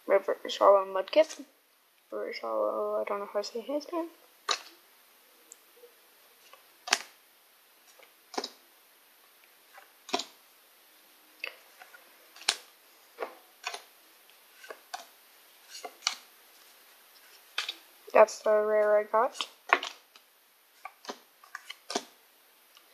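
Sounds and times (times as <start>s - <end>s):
trading cards snapping: 20.8s - 22.2s.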